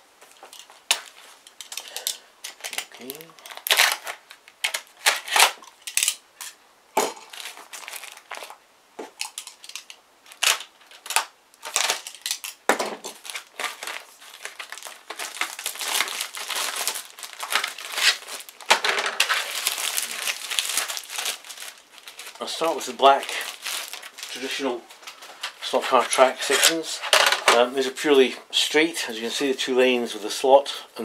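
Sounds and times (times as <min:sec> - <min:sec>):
plastic wrap crinkling: 0:00.3 - 0:28.2.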